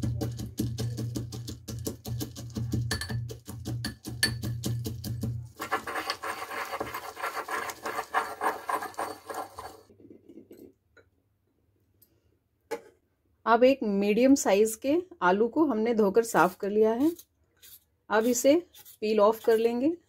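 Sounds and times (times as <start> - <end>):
pestle pounding in metal mortar: 0.0 - 9.8
grinding and scraping crushed nuts: 5.6 - 9.9.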